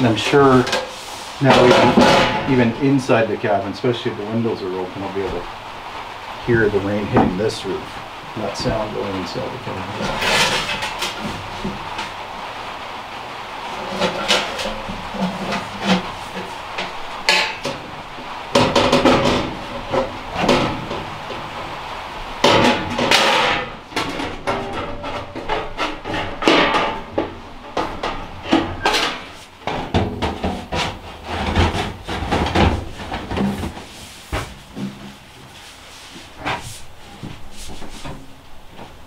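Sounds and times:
sheet metal pipes clanking: 0.0s - 2.9s, 13.8s - 17.8s, 22.4s - 33.9s.

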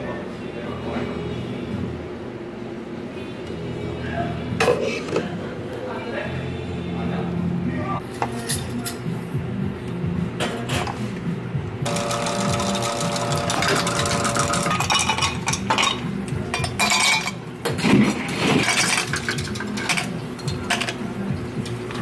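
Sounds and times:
ice cubes clinking in glass: 11.9s - 16.0s.

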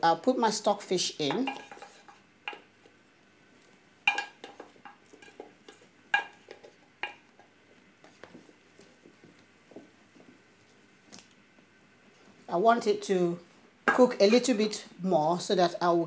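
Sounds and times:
wooden spoon scraping steel dishware: 1.3s - 2.6s.

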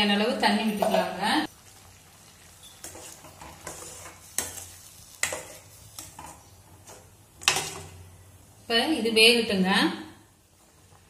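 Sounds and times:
curry bubbling: 1.5s - 7.2s
spoon scraping metal pot: 2.6s - 7.8s.

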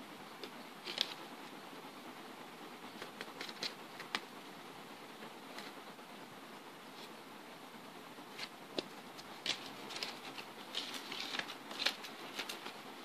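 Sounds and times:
clicks and rustles of handling: 0.4s - 1.3s, 2.9s - 4.3s, 8.3s - 12.9s.

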